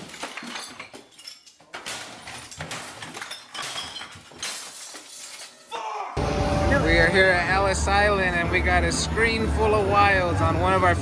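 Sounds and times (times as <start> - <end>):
glass clinks and light knocks: 0.0 - 5.6.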